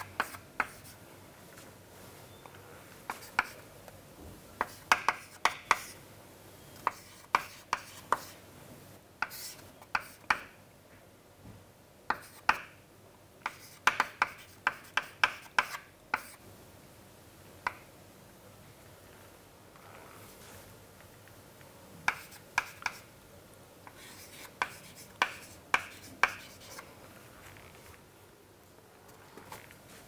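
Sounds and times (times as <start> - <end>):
chalk writing on chalkboard: 0.0 - 1.0, 3.1 - 3.6, 4.6 - 6.0, 6.8 - 8.4, 9.2 - 10.5, 12.1 - 12.7, 13.4 - 16.4, 22.1 - 23.1, 23.8 - 26.9.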